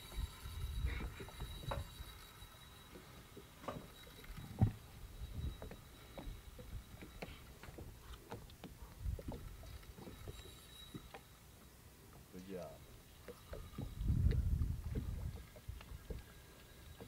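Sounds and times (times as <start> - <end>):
water slapping boat hull: 2.9 - 11.7, 12.9 - 17.0.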